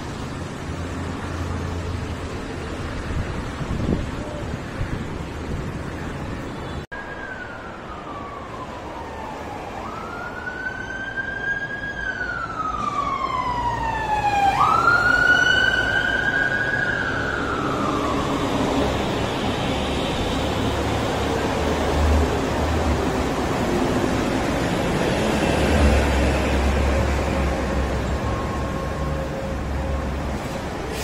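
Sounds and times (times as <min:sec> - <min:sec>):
siren wailing: 0:06.9 - 0:20.5, 0:25.3 - 0:30.9.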